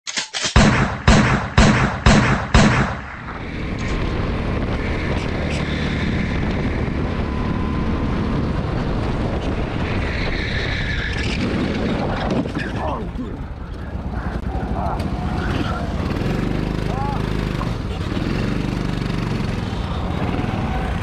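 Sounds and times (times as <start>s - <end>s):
loud booming hits: 0.6s - 3.5s
wind rush: 2.8s - 17.9s
go-kart engine running: 3.3s - 21.0s.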